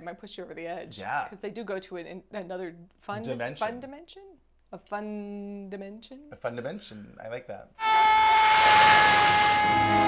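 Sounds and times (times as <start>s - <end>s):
swelling whoosh: 7.8s - 10.0s.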